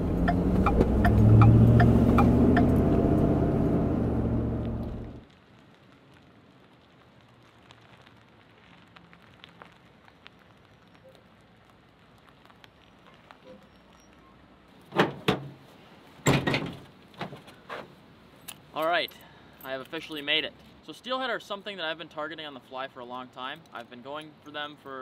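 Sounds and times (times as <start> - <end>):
truck tailgate clunks and thumps: 14.9 - 15.6, 16.2 - 17.8.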